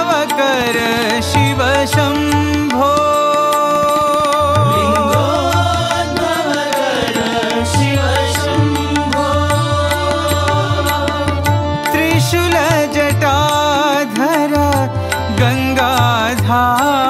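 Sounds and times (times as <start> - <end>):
devotional melody: 0.0 - 17.0
tabla beat: 0.0 - 17.0.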